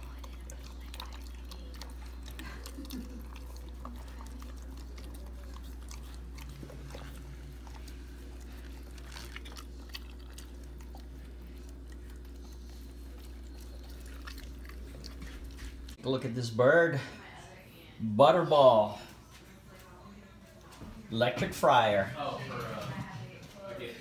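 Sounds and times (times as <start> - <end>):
dog chewing food: 0.0 - 16.0
steady low hum: 0.0 - 24.0.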